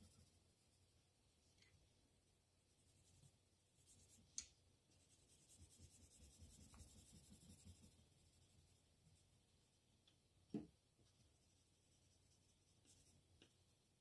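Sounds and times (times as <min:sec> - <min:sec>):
pencil scratching on paper: 0:05.0 - 0:08.4, 0:11.4 - 0:13.2.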